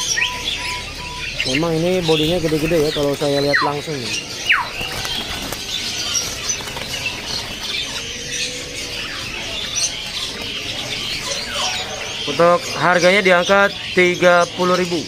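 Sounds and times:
songbirds chirping and twittering: 0:00.0 - 0:15.0
wings fluttering: 0:04.2 - 0:08.3.

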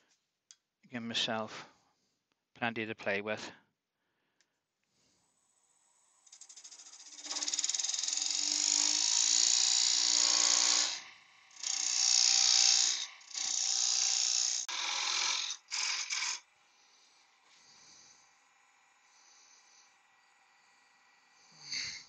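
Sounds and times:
lathe tool cutting wood: 0:06.2 - 0:21.5.

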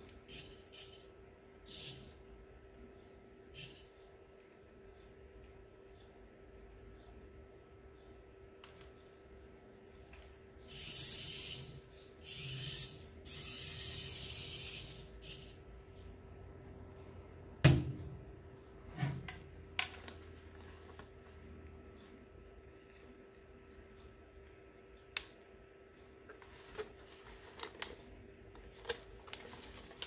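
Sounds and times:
toy car motor whirring: 0:00.2 - 0:02.2, 0:03.5 - 0:03.9, 0:10.6 - 0:15.6.

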